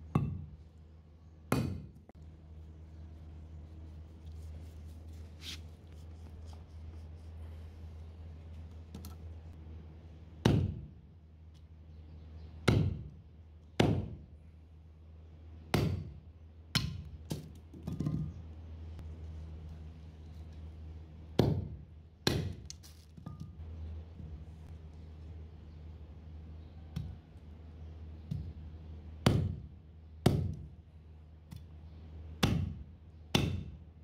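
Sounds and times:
cleaver chopping bone on wood: 0:01.5 - 0:01.9, 0:10.4 - 0:10.9, 0:12.7 - 0:13.1, 0:15.7 - 0:16.1, 0:32.4 - 0:33.8.

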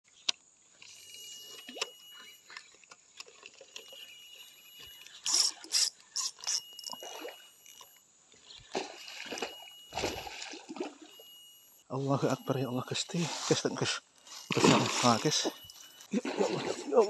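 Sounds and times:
fish splashing at water surface: 0:14.5 - 0:15.5.

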